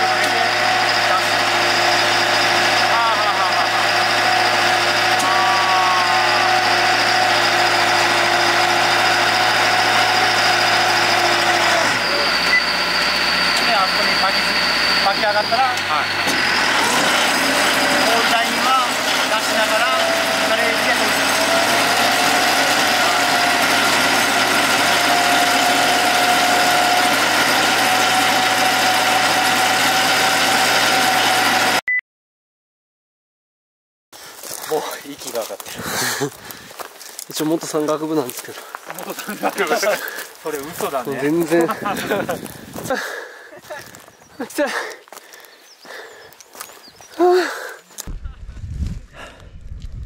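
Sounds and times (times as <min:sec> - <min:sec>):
high whine: 0:00.0 - 0:21.5
engine running under load: 0:00.0 - 0:31.8, 0:34.2 - 0:50.0
winch drums working cables: 0:00.0 - 0:31.8, 0:34.4 - 0:48.2.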